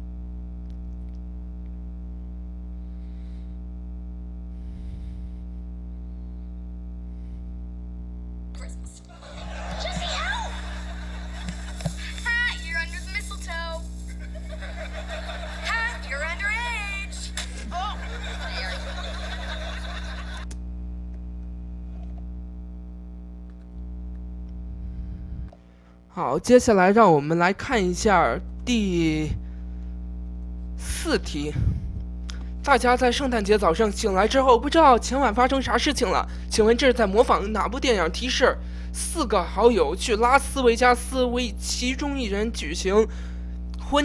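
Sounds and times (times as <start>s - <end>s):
low electrical hum: 0.0s - 44.0s
studio audience laughing: 9.0s - 13.0s, 13.9s - 20.6s.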